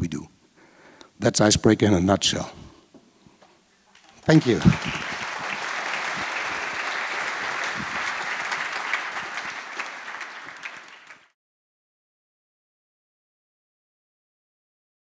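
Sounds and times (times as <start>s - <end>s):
audience applauding: 3.9s - 11.4s.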